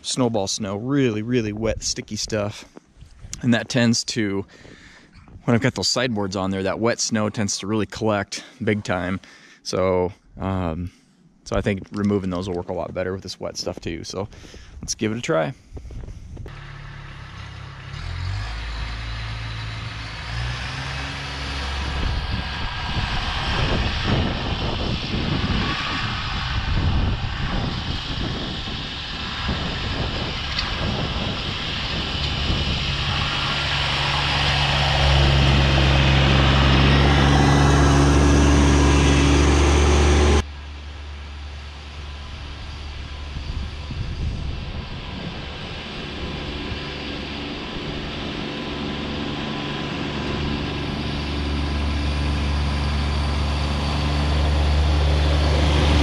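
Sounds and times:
plow pushing slushy snow: 16.5s - 24.1s, 31.4s - 40.4s, 45.8s - 56.0s
tractor diesel engine under load: 16.5s - 43.4s, 45.1s - 56.0s.

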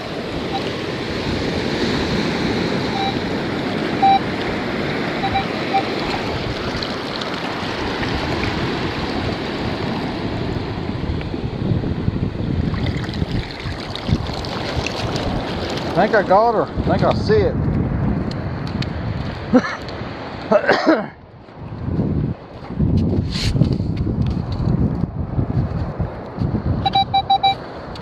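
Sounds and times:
surf washing around boots: 0.0s - 17.4s
wind on microphone: 0.0s - 20.4s, 21.2s - 28.0s
metal detector beeps: 0.5s - 0.7s, 2.9s - 3.3s, 4.0s - 4.3s, 5.2s - 6.0s, 26.8s - 27.6s.

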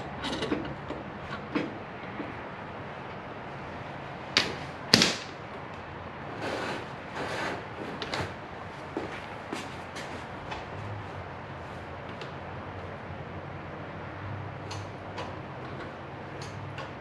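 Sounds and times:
short scraping sounds: 6.4s - 8.3s.

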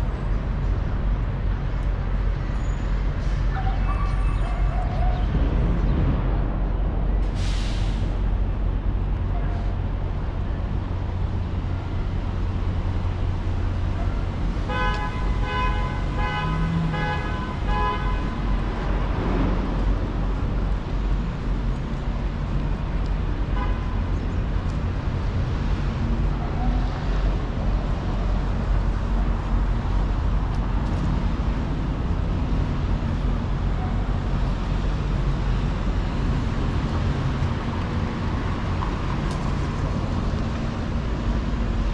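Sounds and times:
street traffic rumble: 0.0s - 41.9s
vehicle horn tooting: 14.7s - 18.4s.

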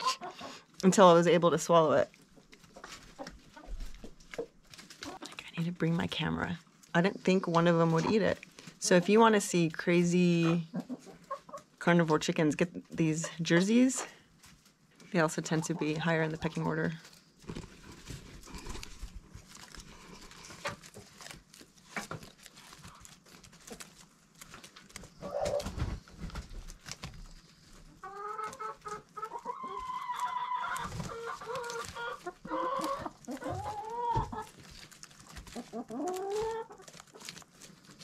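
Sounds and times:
chickens clucking and calling: 0.0s - 0.7s, 2.3s - 5.3s, 10.3s - 11.8s, 25.1s - 26.2s, 27.8s - 34.6s, 35.3s - 37.3s.

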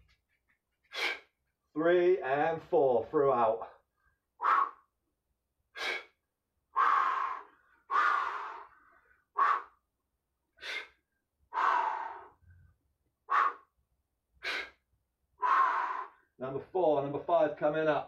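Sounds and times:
man breathing forcefully: 0.8s - 1.4s, 4.4s - 4.9s, 5.7s - 9.8s, 10.6s - 12.4s, 13.2s - 13.7s, 14.4s - 14.8s, 15.4s - 16.3s.

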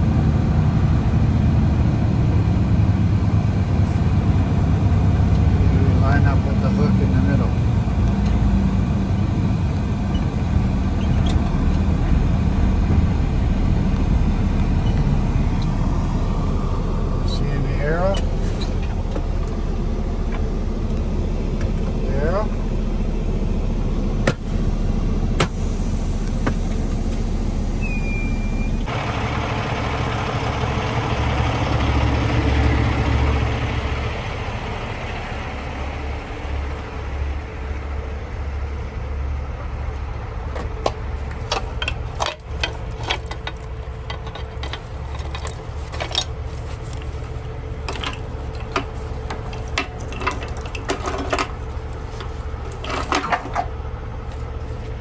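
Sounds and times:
diesel engine running: 0.0s - 55.0s
metal clanks and clicks: 40.5s - 47.1s, 47.8s - 53.8s.

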